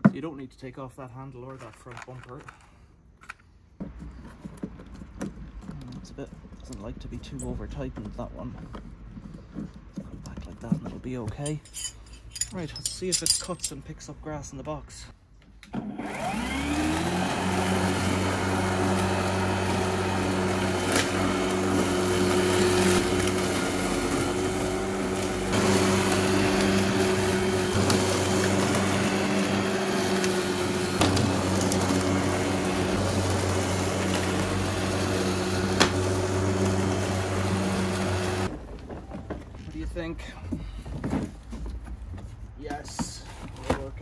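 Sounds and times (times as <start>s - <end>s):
electric lawnmower motor whine: 15.7s - 38.6s
blade cutting grass: 15.8s - 38.5s.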